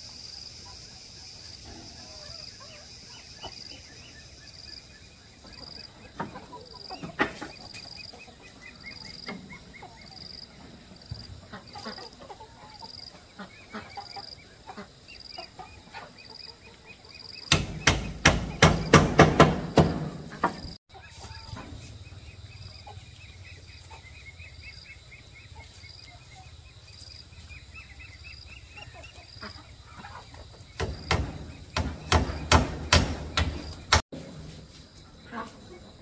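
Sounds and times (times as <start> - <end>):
insects chirping: 0.0 - 36.0
hammer striking nails into wood: 17.5 - 20.2, 30.8 - 33.6.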